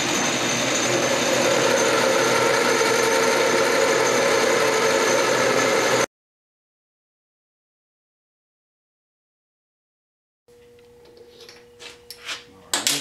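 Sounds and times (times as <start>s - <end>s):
metal lathe machine whine: 0.0s - 6.1s.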